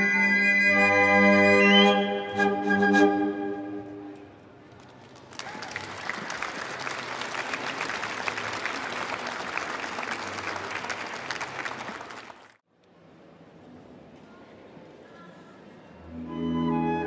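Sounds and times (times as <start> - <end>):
audience applauding: 4.8 - 12.6.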